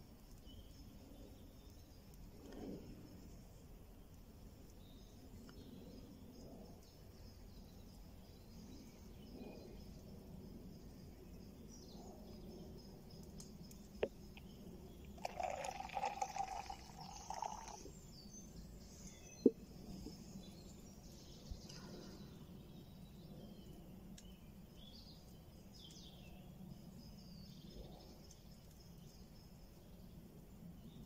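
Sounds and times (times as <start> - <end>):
faint bird chirps: 11.1 - 25.1.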